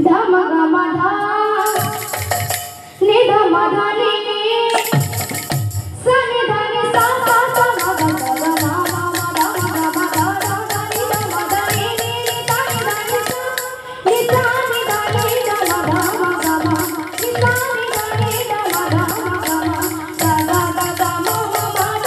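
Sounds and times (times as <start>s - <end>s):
girl singing into microphone: 0.0s - 2.1s, 2.9s - 5.0s, 5.9s - 22.0s
jingle ring shaking: 1.6s - 2.9s, 4.7s - 5.8s, 7.0s - 13.7s, 14.6s - 22.0s
drum strokes: 1.6s - 3.0s, 4.7s - 6.0s, 7.0s - 22.0s.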